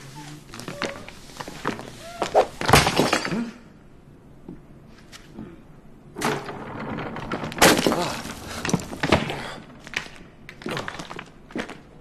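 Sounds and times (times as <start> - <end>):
crashing and breaking: 6.3 - 11.8.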